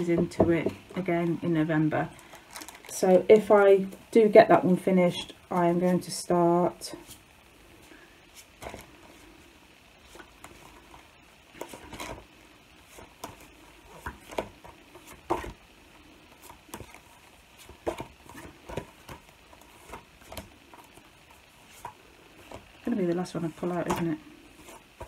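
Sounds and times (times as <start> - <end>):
paper rustling and tapping: 12.9 - 15.6, 16.4 - 21.1.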